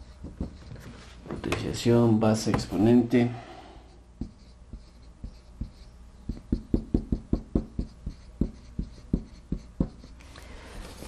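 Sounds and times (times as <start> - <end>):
marker writing on whiteboard: 0.0 - 1.6, 4.2 - 10.2.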